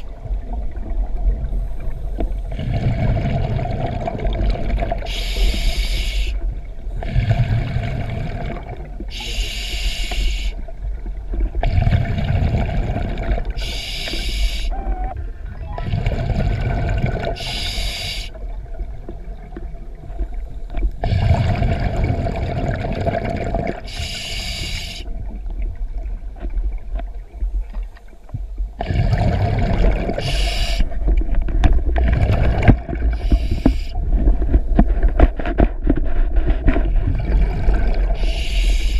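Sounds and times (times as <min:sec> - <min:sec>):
bubbles rumbling underwater: 0:00.0 - 0:05.1, 0:06.4 - 0:09.2, 0:10.6 - 0:13.7, 0:14.7 - 0:23.9, 0:25.0 - 0:38.9
regulator breathing hiss: 0:05.1 - 0:06.4, 0:09.1 - 0:10.6, 0:13.6 - 0:14.8, 0:17.4 - 0:18.4, 0:23.9 - 0:25.1, 0:30.2 - 0:30.9, 0:33.1 - 0:34.0, 0:38.2 - 0:38.9.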